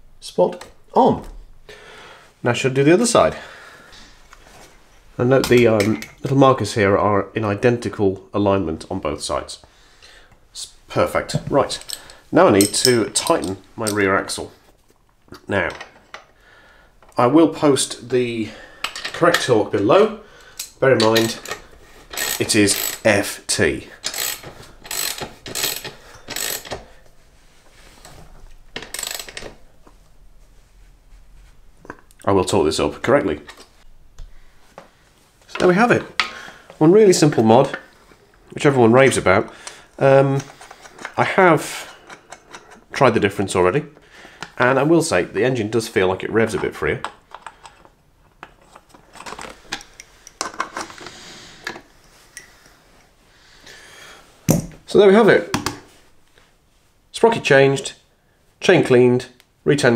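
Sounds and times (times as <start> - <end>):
ratchet spanner clicking: 20.6 - 23.1, 24.0 - 26.8, 28.8 - 29.5.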